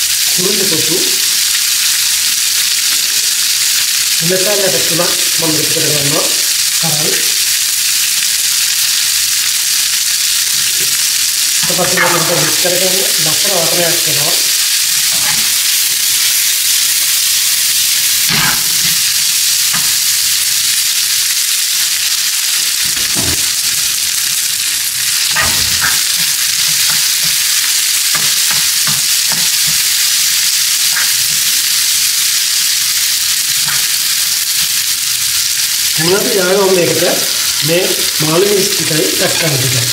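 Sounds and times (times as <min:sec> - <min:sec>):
food sizzling in oil: 0:00.0 - 0:39.9
spatula scraping and knocking pan: 0:11.6 - 0:12.7, 0:15.0 - 0:15.8, 0:18.2 - 0:19.1, 0:22.8 - 0:23.7, 0:25.0 - 0:31.6.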